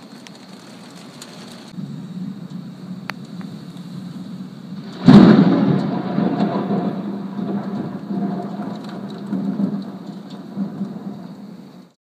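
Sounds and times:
heavy rain falling: 0.0s - 12.0s
thunder rumbling: 0.0s - 12.0s.

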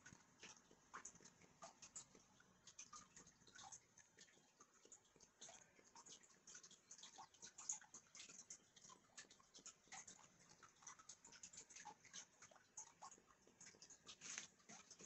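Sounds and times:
pot of water bubbling: 0.0s - 15.0s.

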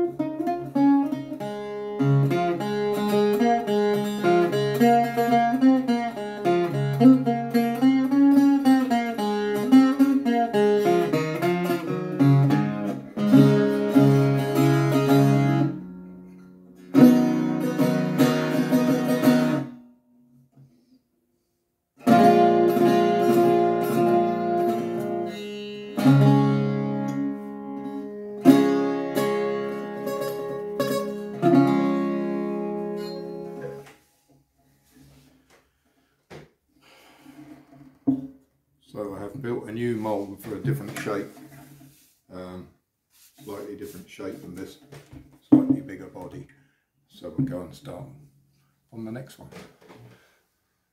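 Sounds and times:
bouzouki strummed chords: 0.0s - 19.8s, 22.0s - 34.1s.

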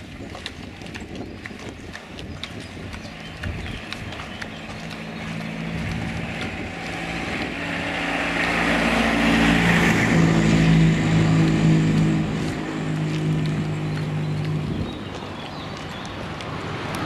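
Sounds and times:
vehicle passing by: 0.2s - 17.0s.

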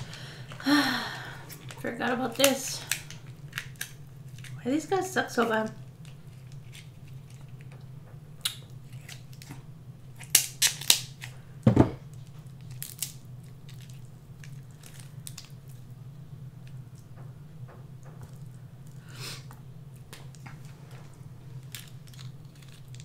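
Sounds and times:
low steady hum: 0.0s - 23.0s
scissors crunching crab shell: 1.5s - 4.6s, 8.4s - 11.3s, 12.6s - 15.7s, 21.6s - 23.0s
shell cracking by hand: 10.2s - 11.3s.

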